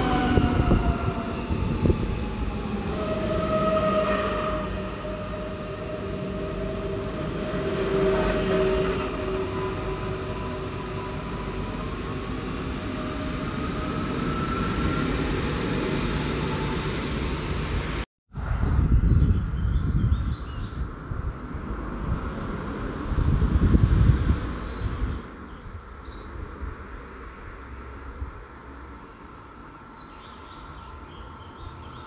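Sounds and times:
wind buffeting microphone: 0:00.0 - 0:16.7, 0:17.3 - 0:26.9
electric train running past: 0:00.0 - 0:18.0.

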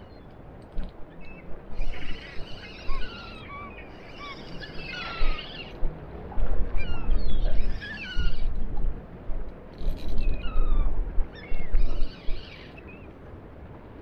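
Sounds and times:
seabirds calling: 0:01.1 - 0:05.9, 0:06.8 - 0:08.6, 0:09.8 - 0:13.2.

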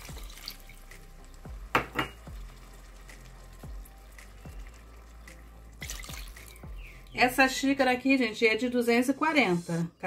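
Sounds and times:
water poured into sizzling pot: 0:00.0 - 0:07.2
sharp knocks against pot: 0:01.7 - 0:02.3.

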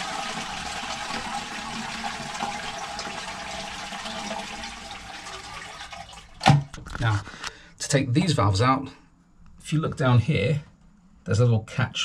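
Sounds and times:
toilet flush water rushing: 0:00.0 - 0:06.6.

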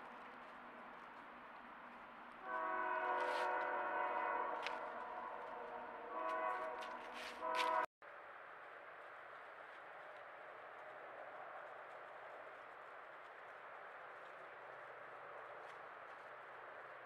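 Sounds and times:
train horn: 0:02.4 - 0:07.9.

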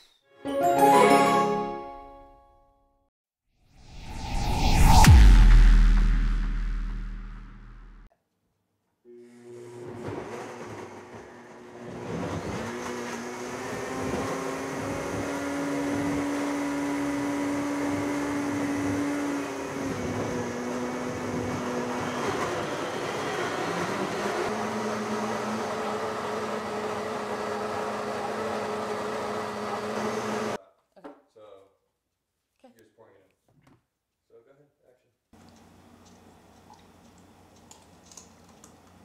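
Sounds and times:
blender motors whining: 0:09.1 - 0:30.6.

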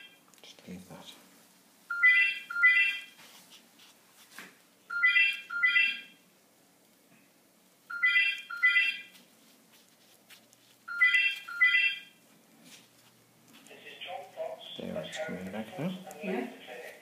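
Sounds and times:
telephone ringing: 0:01.9 - 0:03.1, 0:04.9 - 0:06.1, 0:07.9 - 0:09.1, 0:10.9 - 0:12.2.

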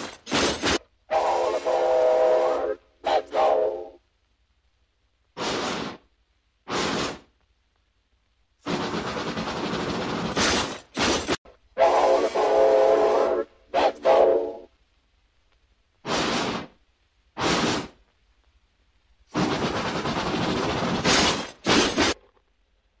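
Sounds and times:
steam whistle toot: 0:01.2 - 0:04.0, 0:11.8 - 0:14.7
steam puffs hissing: 0:05.4 - 0:06.1, 0:06.7 - 0:07.3, 0:16.0 - 0:16.8, 0:17.4 - 0:18.0.

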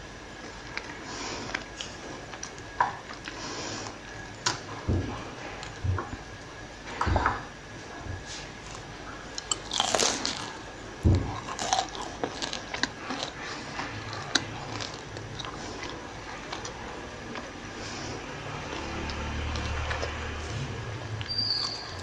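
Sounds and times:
crunchy chewing of fried snack: 0:08.3 - 0:22.0.

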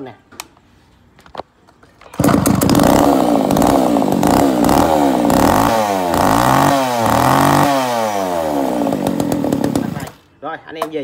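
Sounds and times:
chainsaw revving: 0:02.1 - 0:10.2.

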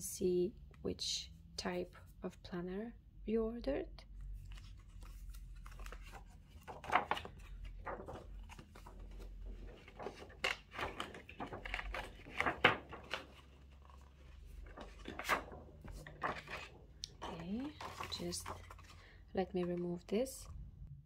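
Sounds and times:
plastic packaging crinkling: 0:05.0 - 0:19.0.

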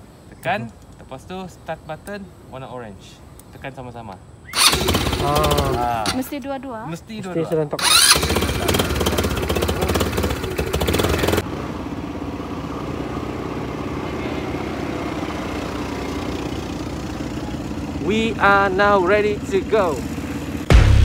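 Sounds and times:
atv engine starting and running: 0:04.5 - 0:06.3, 0:07.8 - 0:20.8
atv engines idling: 0:04.6 - 0:20.7.

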